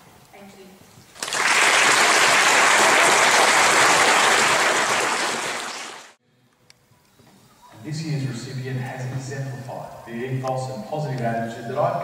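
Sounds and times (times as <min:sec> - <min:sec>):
audience applauding: 0:01.2 - 0:06.2.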